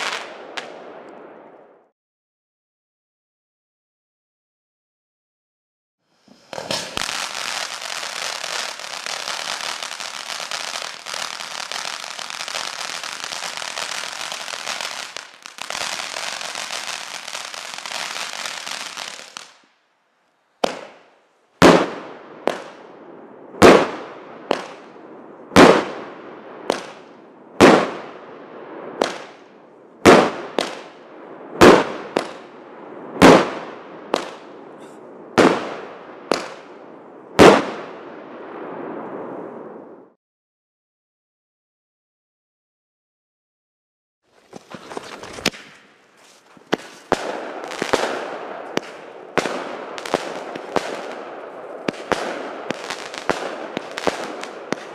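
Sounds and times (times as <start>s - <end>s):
firework bangs: 0.0s - 1.0s, 6.2s - 19.6s, 20.6s - 22.9s, 23.6s - 24.9s, 25.5s - 28.2s, 28.8s - 36.7s, 37.4s - 39.3s, 46.6s - 54.9s
firework fountain hissing: 6.1s - 19.5s
soft firework pops: 6.3s - 7.2s, 44.5s - 45.9s, 46.7s - 51.2s.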